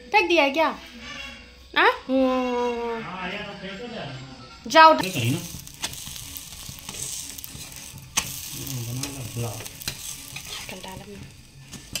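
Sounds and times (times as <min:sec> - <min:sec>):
flatbread sizzling in a pan: 0:05.0 - 0:12.0
spatula scraping a pan: 0:05.0 - 0:12.0.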